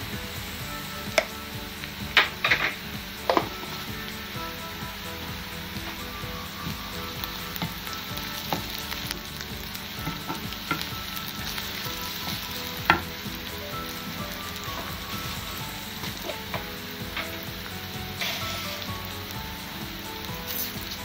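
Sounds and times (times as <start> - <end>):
onions sizzling in hot oil: 0.0 - 21.0
wooden spoon knocking pan: 10.0 - 13.5.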